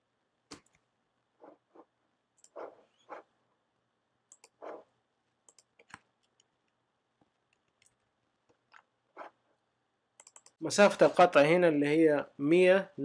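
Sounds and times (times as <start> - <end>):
computer mouse clicking: 4.3 - 4.8, 5.4 - 6.8, 10.2 - 10.6.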